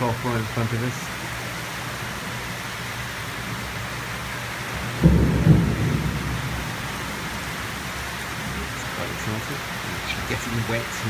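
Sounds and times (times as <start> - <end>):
rain falling: 0.0 - 11.0
thunder clap: 4.8 - 8.7.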